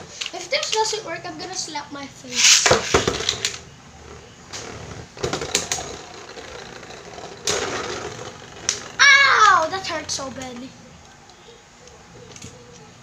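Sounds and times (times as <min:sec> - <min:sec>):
spinning tops whirring: 0:02.3 - 0:11.2
spinning tops clacking together: 0:05.2 - 0:10.7.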